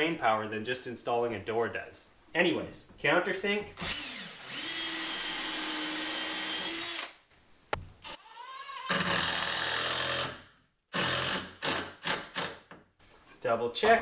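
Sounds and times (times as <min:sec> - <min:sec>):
power drill boring into wood: 0:03.8 - 0:07.2, 0:08.0 - 0:10.4, 0:11.0 - 0:12.6.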